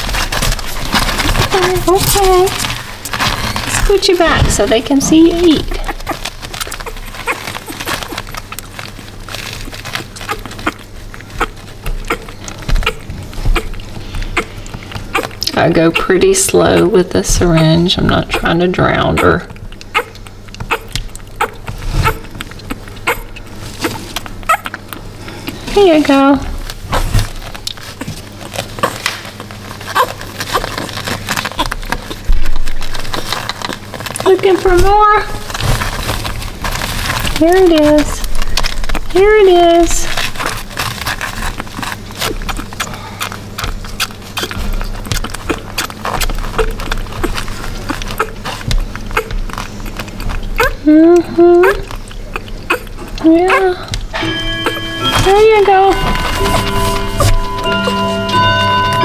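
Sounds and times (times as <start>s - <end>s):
puppy squeaks: 5.7s - 8.4s, 9.8s - 13.8s, 15.1s - 16.1s, 16.7s - 24.8s, 28.8s - 29.1s, 29.9s - 32.2s, 44.0s - 50.9s, 51.6s - 53.9s, 54.6s - 58.2s
puppy suckling wet clicks: 19.2s - 25.0s, 42.2s - 53.9s.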